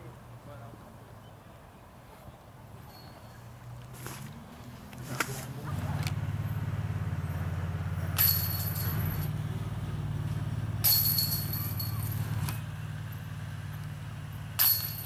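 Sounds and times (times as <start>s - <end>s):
sharp ringing noise: 2.8s - 3.5s, 7.2s - 9.4s, 10.8s - 15.0s
vehicle engine running: 3.5s - 15.0s.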